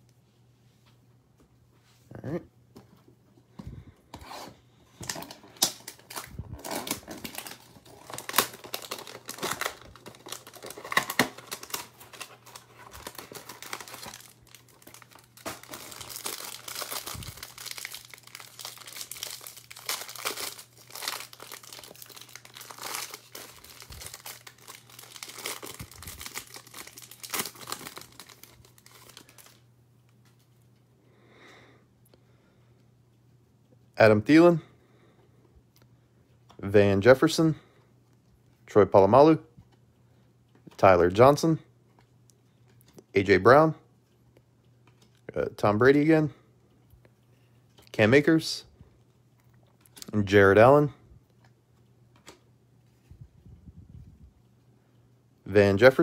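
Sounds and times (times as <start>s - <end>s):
plastic wrapper crinkling and tearing: 5.0s - 29.6s.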